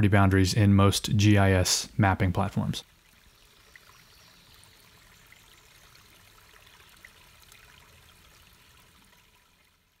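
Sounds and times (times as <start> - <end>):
faint microphone hiss: 0.0 - 10.0.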